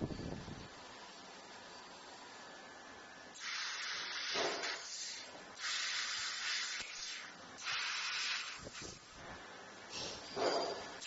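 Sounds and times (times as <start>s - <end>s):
laser cutting head hissing: 3.4s - 9.0s.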